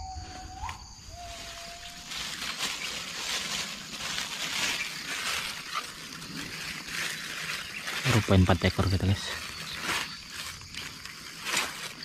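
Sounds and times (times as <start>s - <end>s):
thin steady whistling tone: 0.0s - 8.3s
rustling through grass and leaves: 0.0s - 12.0s.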